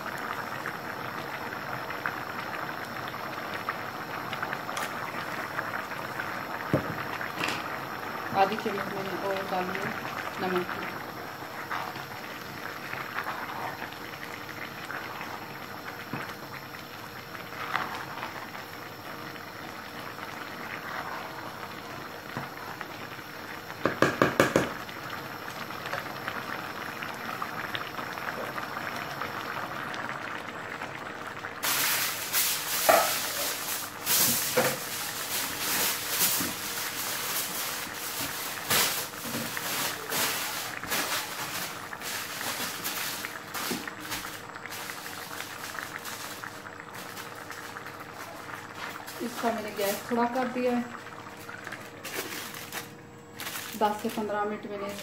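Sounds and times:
pot of rice bubbling: 0.0 - 55.0
aluminium foil crinkling: 31.6 - 50.0, 51.4 - 55.0.

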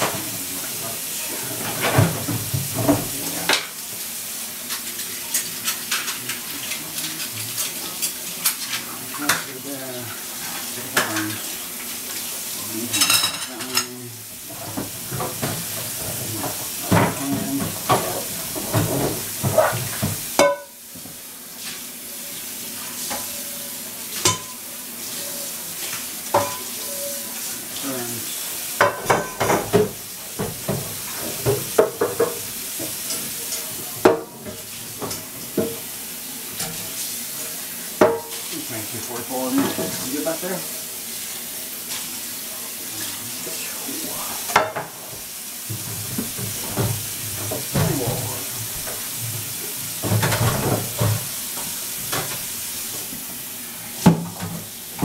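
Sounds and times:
dishes clattering in sink: 0.0 - 3.8, 4.7 - 11.6, 12.8 - 21.2, 23.0 - 27.4, 28.8 - 35.9, 37.9 - 40.5, 44.4 - 53.2, 54.0 - 55.0
steady water hiss: 0.0 - 55.0.

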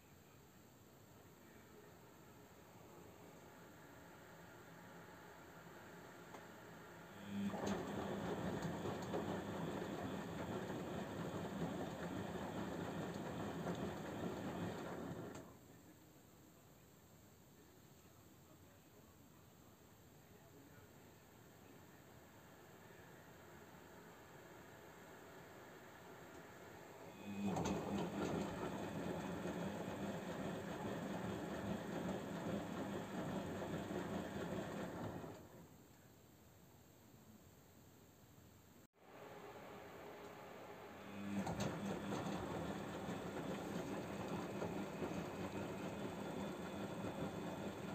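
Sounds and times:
washing machine hum: 1.4 - 15.7, 20.7 - 35.8, 39.0 - 47.9.

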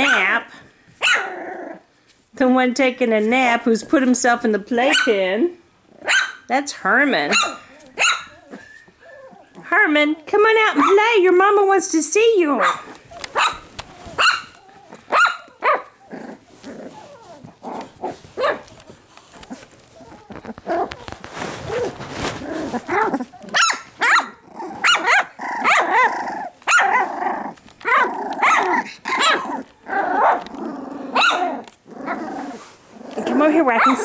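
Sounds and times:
puppies barking and yipping: 7.3 - 9.6, 12.6 - 34.0.

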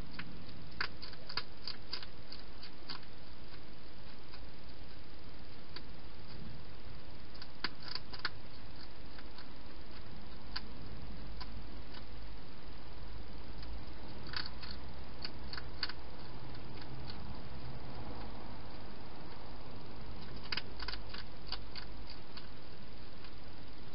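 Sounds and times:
steady hiss: 0.0 - 23.9
hedgehog chewing crisp clicks: 0.1 - 5.0, 7.3 - 10.7, 11.3 - 12.2, 13.6 - 17.2, 20.2 - 22.6.

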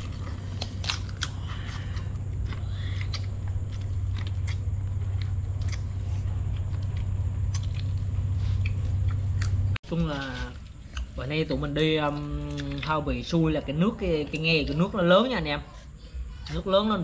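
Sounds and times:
crab shells cracking: 0.0 - 4.7
steady low hum: 0.0 - 17.0.

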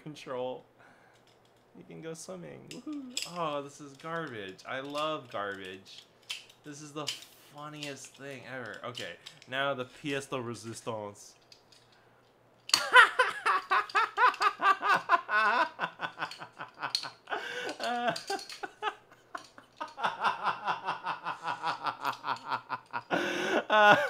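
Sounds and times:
woman laughing hard: 12.8 - 24.0.

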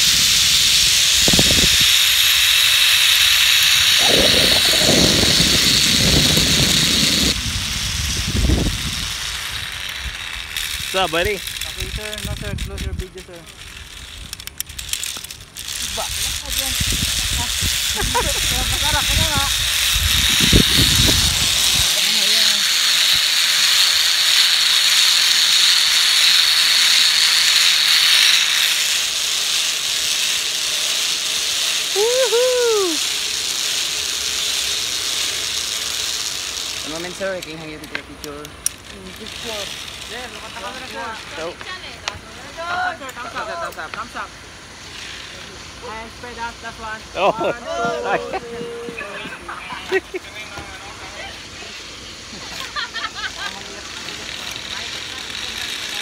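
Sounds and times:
zip-line trolley whining on cable: 0.0 - 56.0
wind buffeting microphone: 0.1 - 2.1, 3.6 - 13.4, 15.8 - 22.1.

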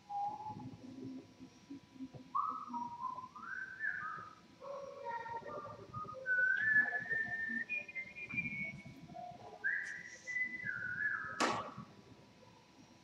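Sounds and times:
person whistling a slow tune: 6.1 - 9.0, 9.6 - 11.4.

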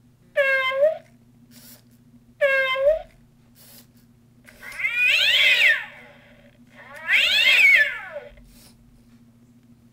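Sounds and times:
recorded cat yowls: 2.4 - 3.1, 4.6 - 6.1, 6.8 - 8.4.

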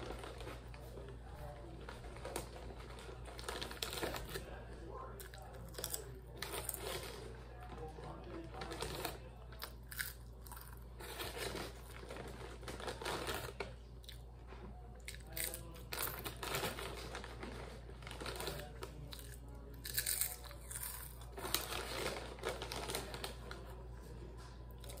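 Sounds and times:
foil snack bag crinkling: 0.0 - 4.6, 5.2 - 13.7, 15.2 - 23.9
chips crunching while chewing: 5.1 - 7.2, 8.3 - 14.3, 15.0 - 17.4, 18.0 - 23.6.

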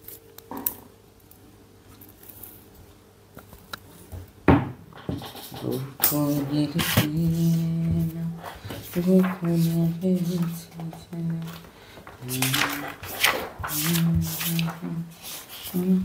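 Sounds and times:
man humming: 5.6 - 11.6.

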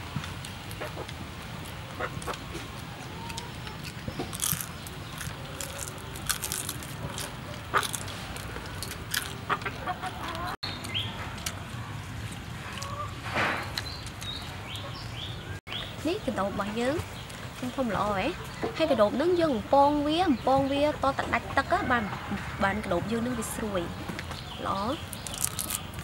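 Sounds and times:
crisp snapping and chewing: 0.2 - 12.9, 25.0 - 26.0.

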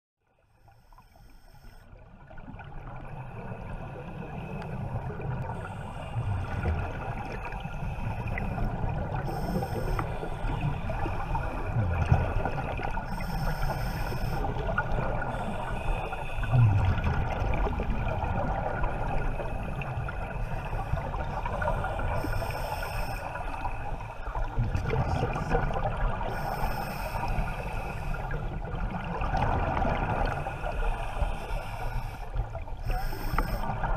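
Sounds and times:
regulator inhalation hiss: 7.5 - 11.5, 12.4 - 14.6, 15.2 - 16.6, 21.8 - 24.4, 26.3 - 28.3, 30.3 - 33.9
gurgle of exhaled bubbles: 16.4 - 22.2, 24.4 - 26.4, 28.2 - 30.6.

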